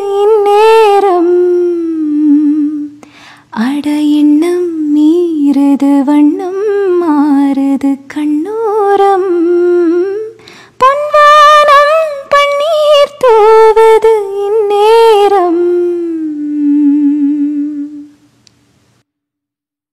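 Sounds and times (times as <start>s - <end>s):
woman humming: 15.8s - 18.1s.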